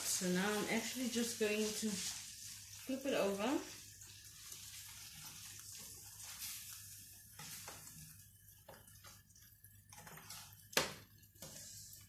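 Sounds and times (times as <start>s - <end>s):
pork chops sizzling in a pan: 0.0s - 12.0s
tongs scraping and clicking on pan: 3.7s - 12.0s.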